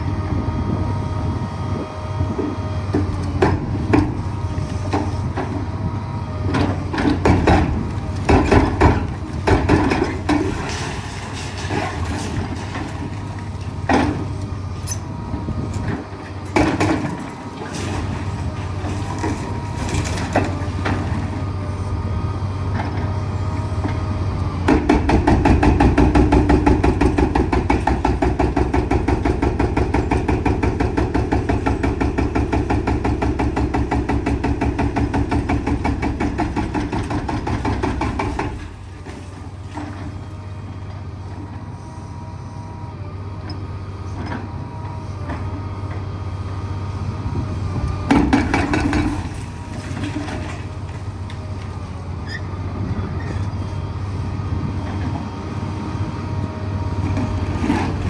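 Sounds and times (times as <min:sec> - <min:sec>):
diesel engine running: 0:00.0 - 0:58.0
hydraulic breaker hammering: 0:24.7 - 0:38.8, 0:48.1 - 0:50.5.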